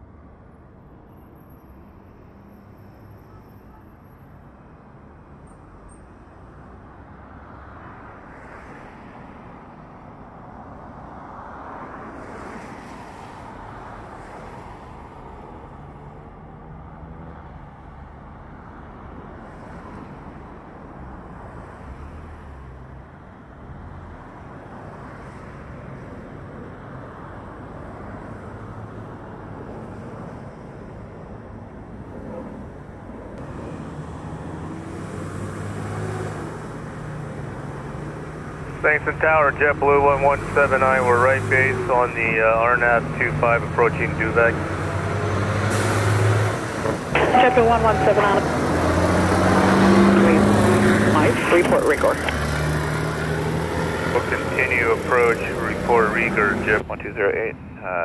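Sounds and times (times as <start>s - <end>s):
jet engines at takeoff thrust: 51.2s - 52.4s, 54.1s - 57.6s.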